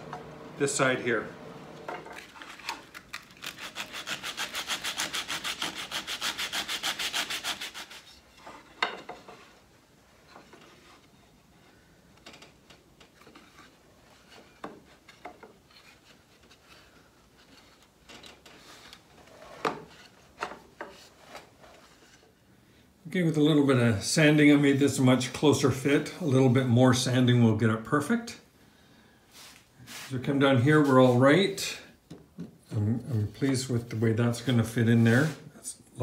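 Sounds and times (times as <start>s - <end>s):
hand sanding wood: 3.4s - 8.2s.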